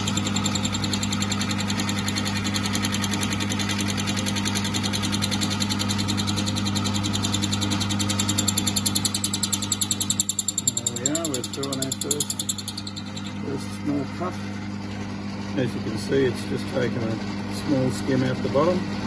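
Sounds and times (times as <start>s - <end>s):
electric motor hum: 0.0s - 19.0s
fast mechanical pulsing: 0.0s - 19.0s.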